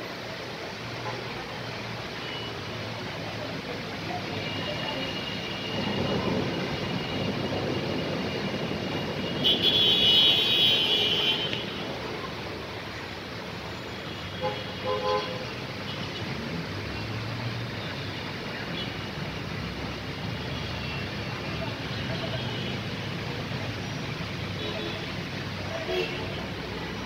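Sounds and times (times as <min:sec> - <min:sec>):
rain: 0:00.0 - 0:27.0
tyres hissing through water: 0:00.0 - 0:27.0
car horn toots: 0:09.2 - 0:11.8.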